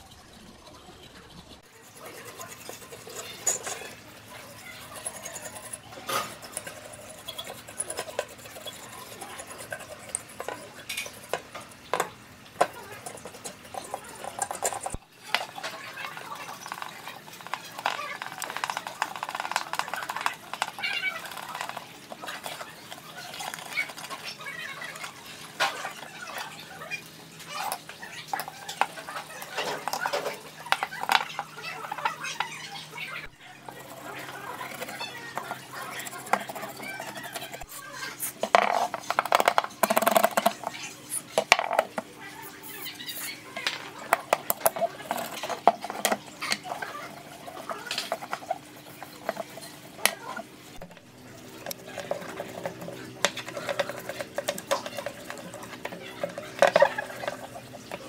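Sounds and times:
metal parts and tools clinking: 0:01.9 - 0:04.0.

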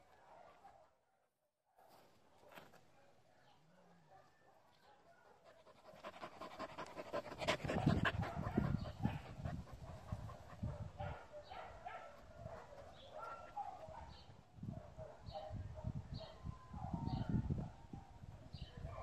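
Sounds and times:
dog panting rapidly: 0:05.4 - 0:10.8.

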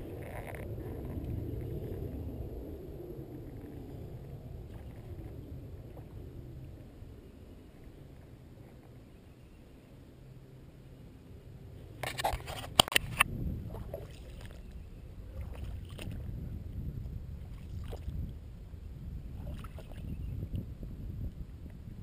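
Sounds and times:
footsteps wading through water: 0:12.1 - 0:16.4, 0:17.0 - 0:18.4, 0:19.3 - 0:20.2.

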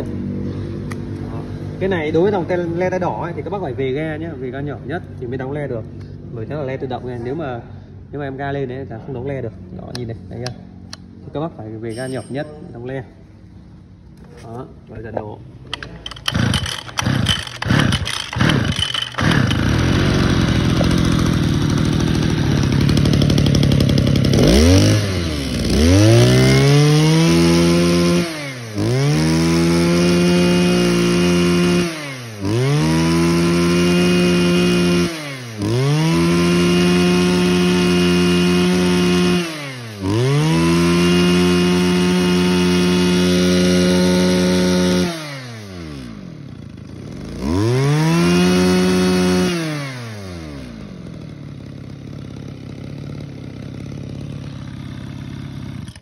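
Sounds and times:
brush cutter engine revving: 0:14.1 - 0:56.0.

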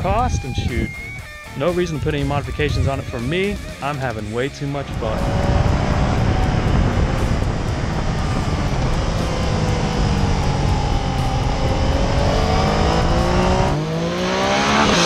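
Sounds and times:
motorcycle engine accelerating: 0:04.6 - 0:15.0
wind rush: 0:04.7 - 0:15.0.

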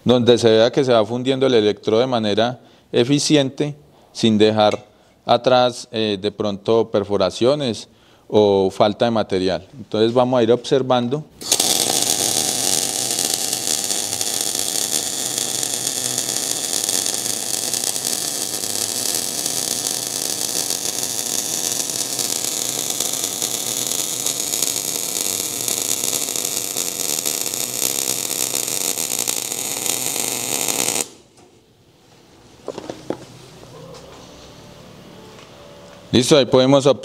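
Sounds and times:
welding arc crackling and hissing: 0:11.4 - 0:31.4.

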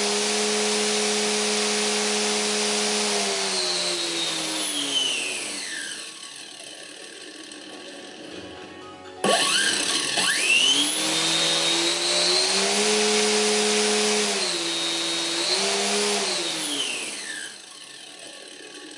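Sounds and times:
electric motor whine: 0:00.0 - 0:08.5, 0:09.2 - 0:18.9.

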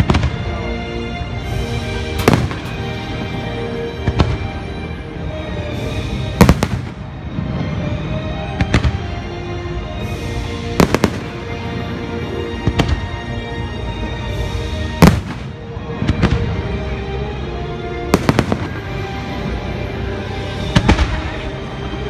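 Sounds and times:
fireworks bursting with bangs: 0:00.0 - 0:00.6, 0:02.1 - 0:04.6, 0:06.3 - 0:09.1, 0:10.0 - 0:13.2, 0:15.0 - 0:16.7, 0:18.1 - 0:19.7, 0:20.6 - 0:22.0
music soundtrack: 0:00.0 - 0:22.0.

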